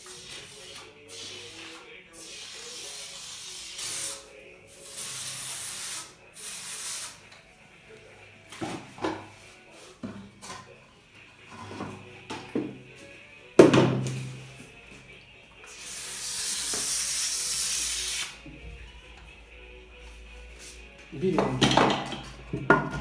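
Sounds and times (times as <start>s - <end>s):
foam hissing from foam gun: 4.8s - 7.2s, 15.7s - 18.4s.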